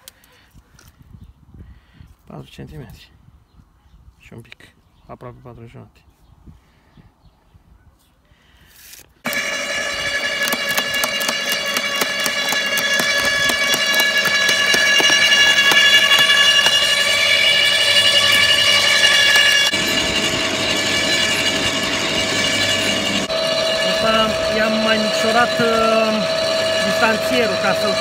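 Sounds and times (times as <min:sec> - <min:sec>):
garden shredder running: 0:09.3 - 0:28.0.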